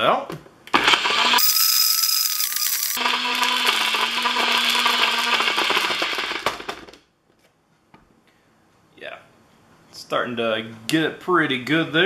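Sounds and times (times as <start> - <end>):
blender motor hum: 0.7 - 6.9
ball rattling in blender: 1.2 - 6.9.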